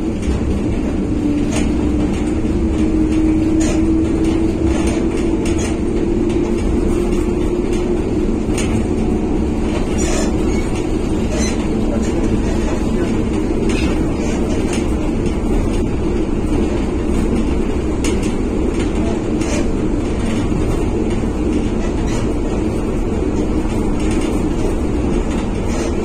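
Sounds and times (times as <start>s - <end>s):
train rumbling: 0.0s - 26.0s.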